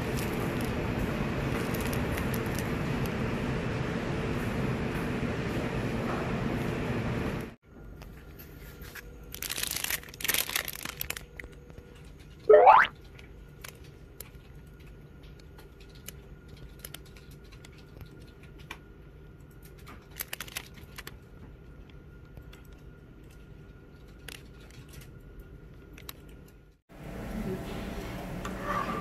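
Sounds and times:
plastic wrapper crinkling: 1.6 - 2.7, 8.8 - 11.7, 19.7 - 21.2
rising whistle sound effect: 12.5 - 12.9.

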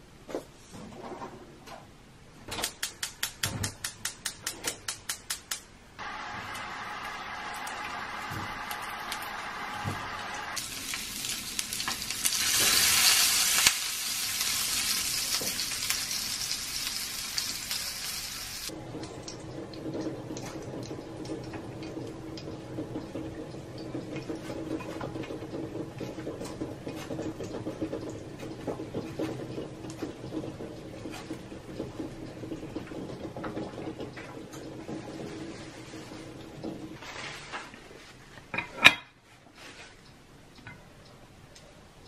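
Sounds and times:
sausages sizzling in a pan: 6.0 - 18.8.

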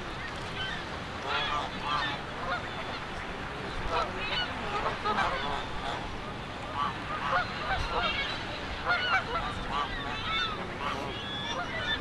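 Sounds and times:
geese honking: 6.8 - 12.0.

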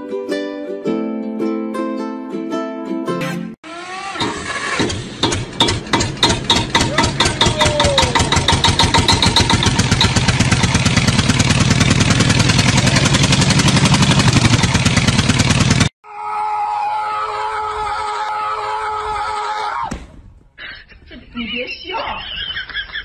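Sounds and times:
small engine chugging: 3.8 - 15.9.

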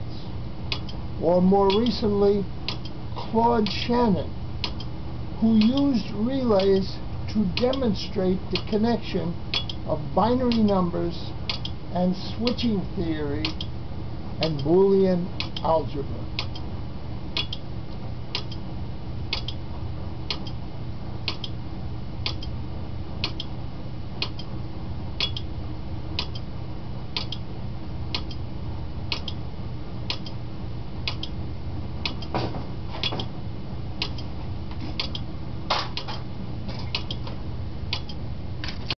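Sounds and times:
steady low hum: 0.0 - 38.9
relays clicking: 6.5 - 6.9.

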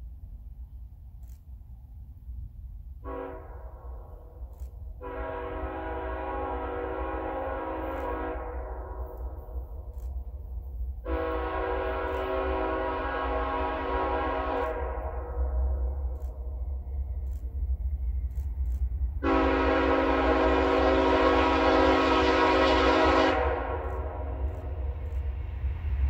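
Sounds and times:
locomotive air horn chord: 3.0 - 3.8, 5.0 - 9.4, 11.0 - 15.6, 19.2 - 24.6
low rumble: 14.6 - 20.0, 23.4 - 26.0.

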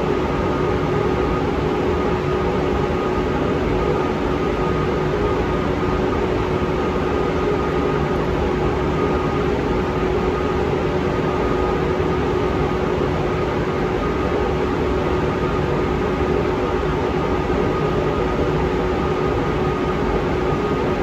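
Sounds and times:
ventilation fan running: 0.0 - 21.0.

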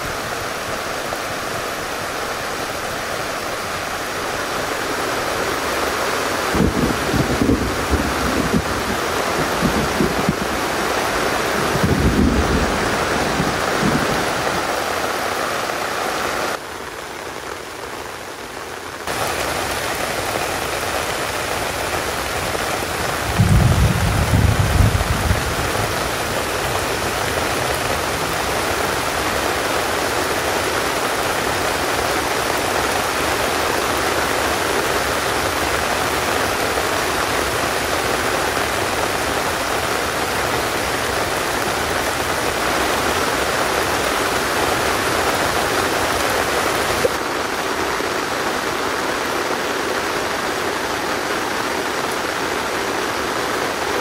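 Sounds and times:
heavy rain falling: 0.0 - 54.0
thunder rumbling: 6.4 - 14.8, 19.1 - 29.2.

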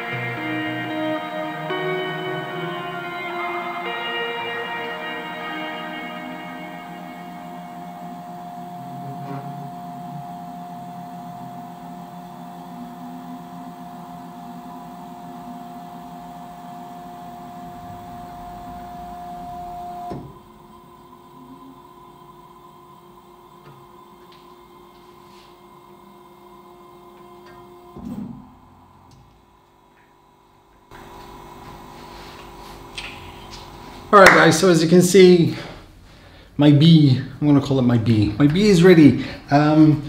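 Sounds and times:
faint steady hum: 0.0 - 40.0
stepper motors whining: 5.3 - 24.4.

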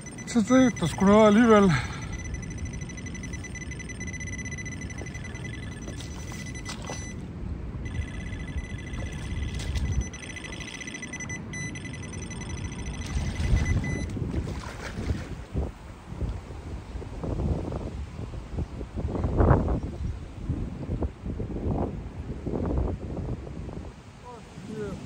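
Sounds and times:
high-pitched whine: 0.0 - 7.2, 7.9 - 14.1
wind rumbling on microphone: 1.8 - 11.7, 12.5 - 25.0.

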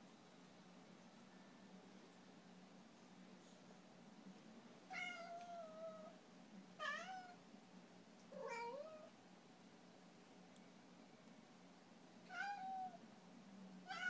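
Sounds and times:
cat meowing: 4.9 - 6.1, 6.8 - 7.4, 8.4 - 9.1, 12.3 - 13.0.

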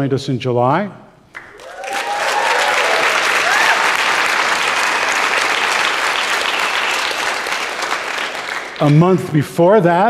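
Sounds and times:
audience clapping: 1.3 - 9.4
person cheering: 1.5 - 4.8.

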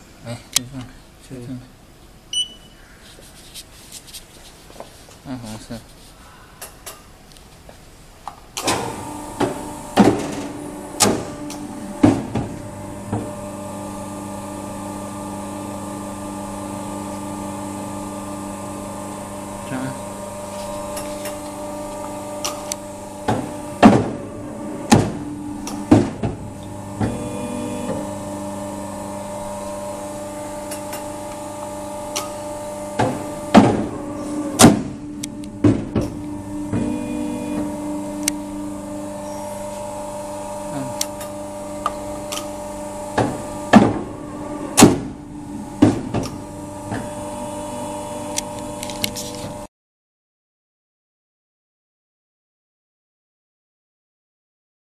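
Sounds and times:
paper cutter motor humming: 8.6 - 49.7
sharp machine knocks: 23.3 - 24.2, 24.8 - 27.2, 33.0 - 33.9, 34.6 - 35.0, 35.6 - 36.9, 43.2 - 44.1, 44.8 - 45.2, 45.8 - 47.1.

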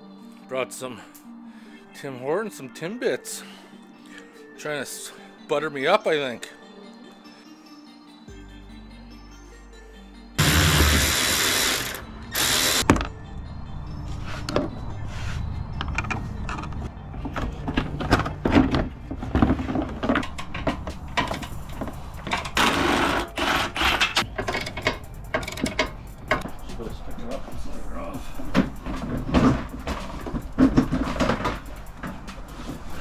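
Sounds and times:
electric ratchet spinning bolts: 10.4 - 12.8, 21.3 - 26.5
tools and parts rattling: 15.8 - 26.8, 28.3 - 33.0.

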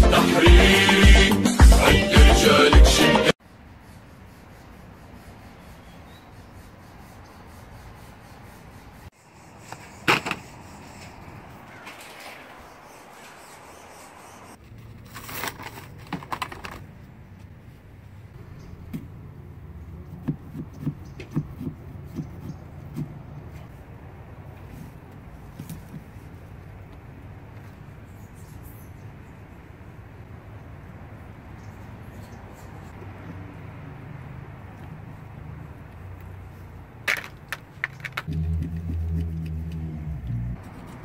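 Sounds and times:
crackly rustle: 9.7 - 18.4.

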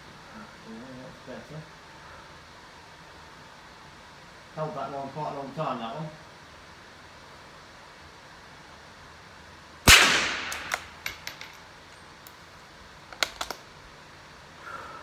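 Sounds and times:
rifle shot echoing indoors: 9.9 - 11.2
rifle bolt being worked: 13.1 - 13.6.

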